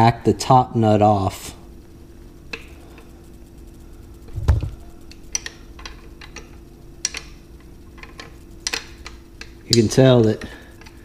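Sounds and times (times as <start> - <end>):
dull thump: 4.3 - 4.8.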